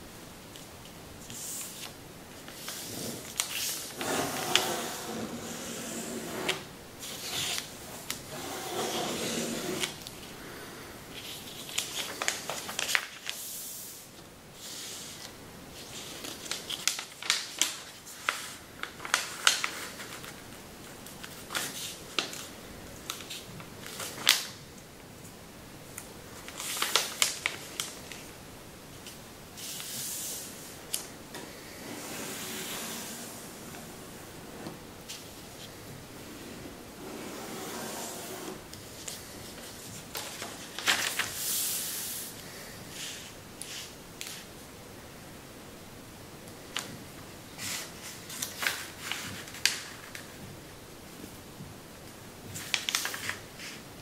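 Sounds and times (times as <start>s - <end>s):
paper rustling: 0.6s - 5.4s, 11.2s - 13.4s, 14.7s - 24.6s, 26.4s - 28.3s, 38.7s - 42.2s, 47.6s - 50.4s, 52.5s - 53.8s
paper crackling as creased: 39.0s - 41.4s.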